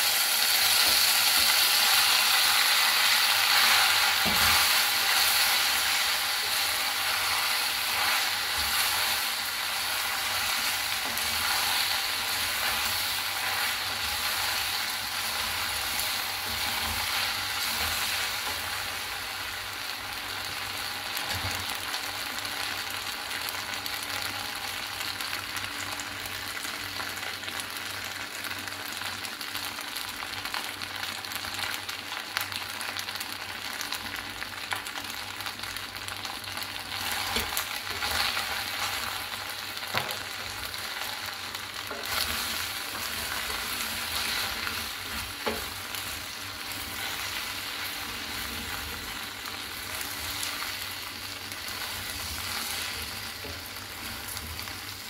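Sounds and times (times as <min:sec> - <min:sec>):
pasta sizzling in a pot: 0:00.0 - 0:55.0.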